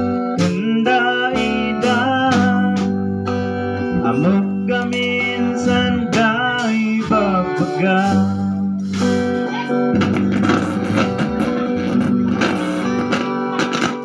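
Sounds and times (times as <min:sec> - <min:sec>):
amplified electric guitar: 0:00.0 - 0:14.0
electric bass: 0:00.0 - 0:14.0.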